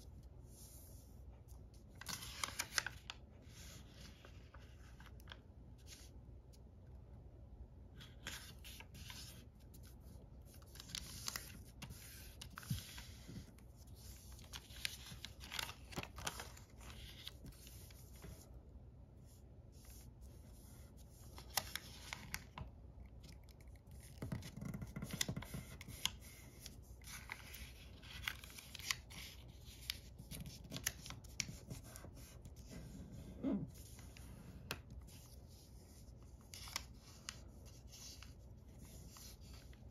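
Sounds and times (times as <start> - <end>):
paper rustling and crinkling: 1.4 - 6.2, 8.0 - 18.5, 19.7 - 39.9
fingers tapping paper: 23.9 - 26.0.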